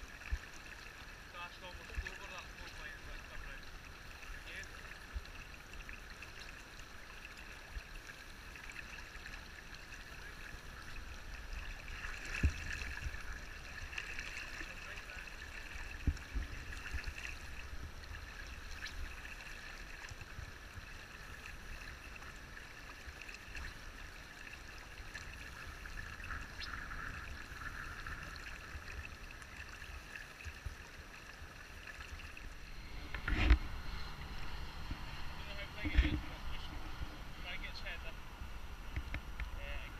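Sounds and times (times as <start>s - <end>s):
river water flowing: 0.0s - 39.9s
low rumble: 32.3s - 39.9s.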